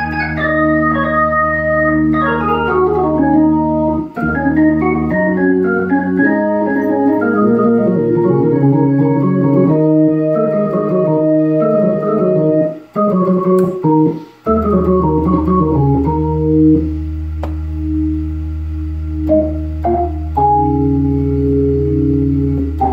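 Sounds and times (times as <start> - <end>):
organ playing chords and melody: 0.0 - 22.9
low bass note: 14.8 - 22.9.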